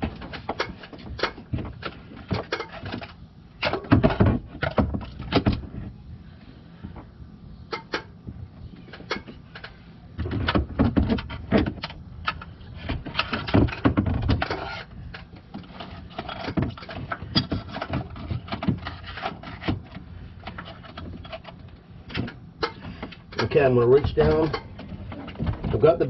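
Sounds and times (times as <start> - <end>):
belt knocking and rustling on pulleys: 8.7 - 26.0.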